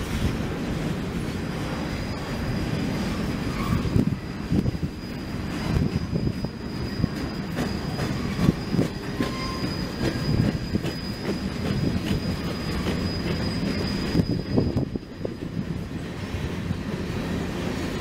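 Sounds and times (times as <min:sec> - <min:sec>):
freight train rumbling: 0:00.0 - 0:18.0
high-pitched wheel squeal: 0:01.9 - 0:15.4
wheel clacks over rail joints: 0:05.6 - 0:15.4.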